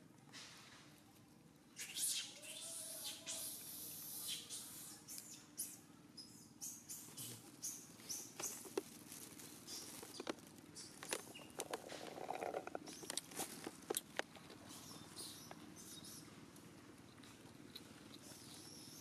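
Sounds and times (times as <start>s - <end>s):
rustling of dry leaves and twigs: 7.1s - 19.0s.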